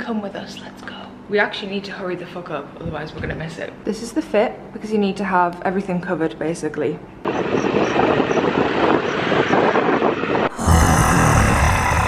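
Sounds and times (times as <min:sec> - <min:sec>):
wind buffeting microphone: 0:02.8 - 0:03.6, 0:07.3 - 0:10.6.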